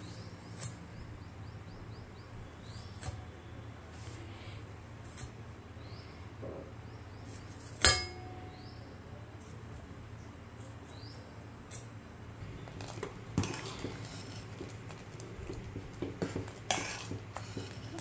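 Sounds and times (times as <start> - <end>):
steady low hum: 0.0 - 18.0
knife striking steel plate: 7.8 - 8.6
spoon scraping pressure cooker: 12.5 - 18.0.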